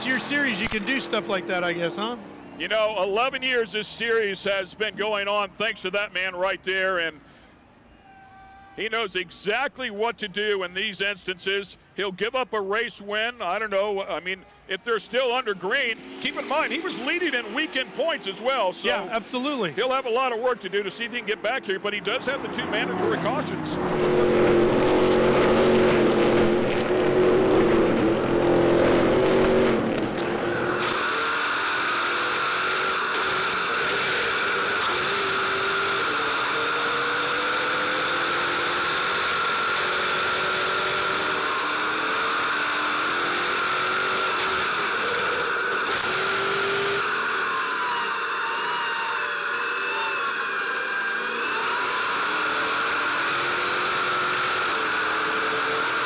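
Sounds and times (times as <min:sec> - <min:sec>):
racing truck engines: 0:00.0 - 0:07.6, 0:08.8 - 0:56.0
engine whine from inside cab: 0:23.3 - 0:56.0.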